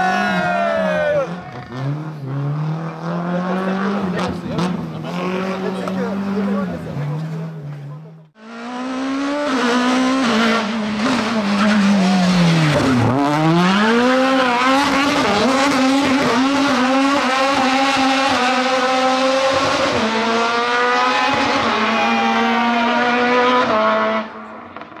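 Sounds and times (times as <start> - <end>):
rally car engine at high revs: 1.2 - 25.0.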